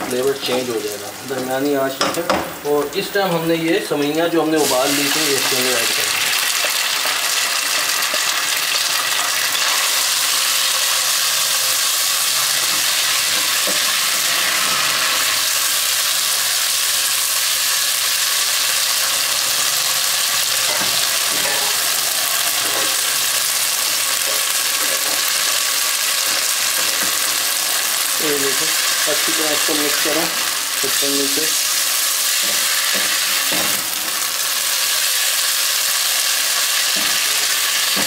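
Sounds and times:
noodles sizzling in fat: 0.0 - 38.0
spatula stirring in wok: 4.9 - 15.4.

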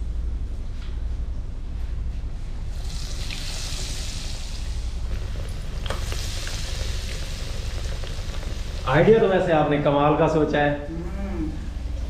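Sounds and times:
low steady hum: 0.0 - 12.0
bread sizzling in a frying pan: 2.7 - 10.0.

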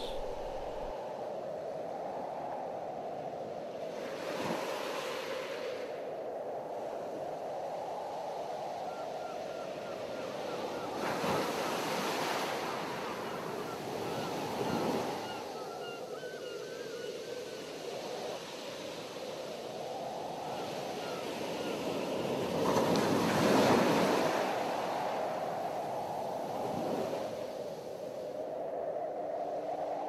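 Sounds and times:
ocean waves breaking: 0.0 - 0.9.

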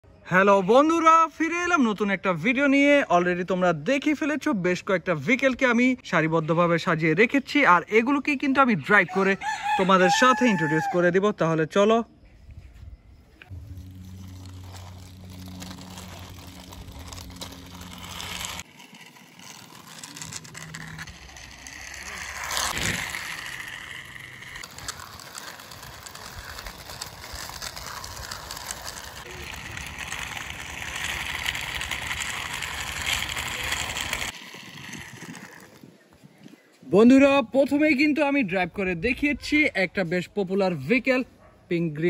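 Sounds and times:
outdoor background: 0.0 - 42.0
toy wheels scraping on concrete: 7.2 - 11.1, 13.4 - 38.0
loud rustle: 13.5 - 35.9.

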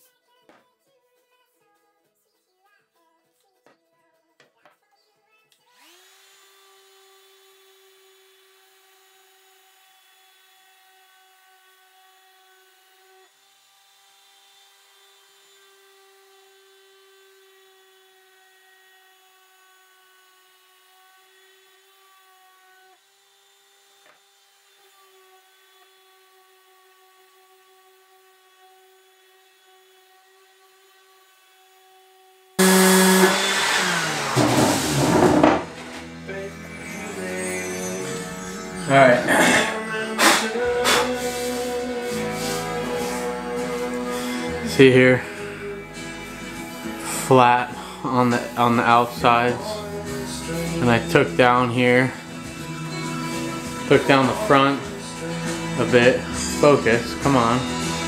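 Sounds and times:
orbital sander whining: 32.6 - 58.0.

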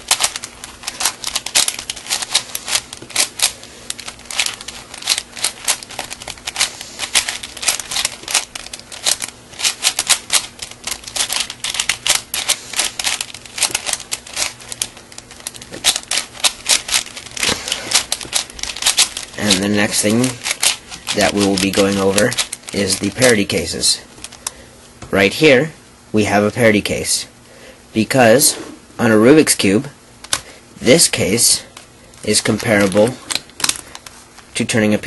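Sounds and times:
puzzle cube clicking: 0.1 - 23.4.

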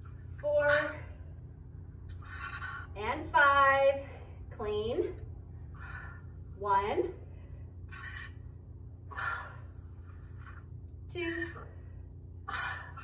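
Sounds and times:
low steady hum: 0.0 - 13.0
woman counting: 0.4 - 1.1, 3.0 - 5.2, 6.6 - 7.2, 11.1 - 11.8.

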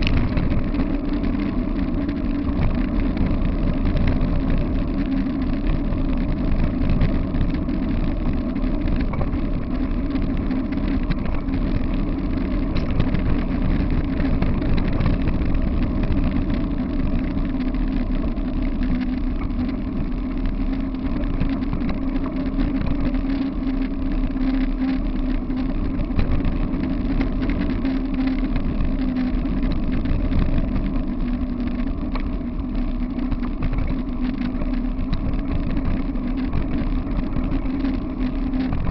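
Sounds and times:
wind buffeting microphone: 0.0 - 38.9
tyre rumble on pavement: 25.3 - 38.9.

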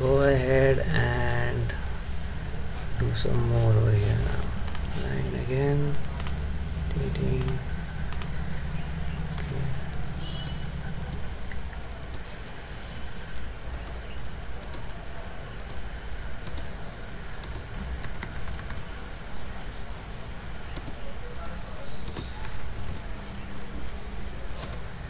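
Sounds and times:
steady low hum: 0.0 - 25.0
computer keyboard and mouse clicks: 9.2 - 12.3, 13.3 - 14.0, 16.4 - 16.7, 17.4 - 18.8, 20.7 - 23.7, 24.5 - 24.9.

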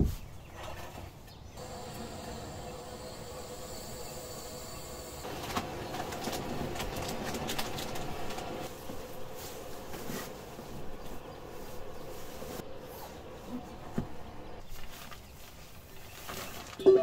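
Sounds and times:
tent fabric rustling and crinkling: 5.2 - 17.0.

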